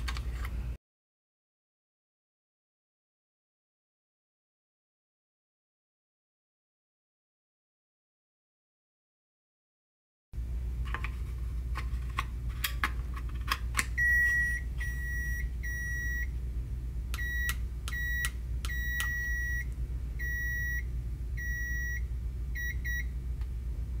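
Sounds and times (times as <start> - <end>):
keypad beeps: 14.0 - 16.3, 17.2 - 22.0, 22.6 - 23.1.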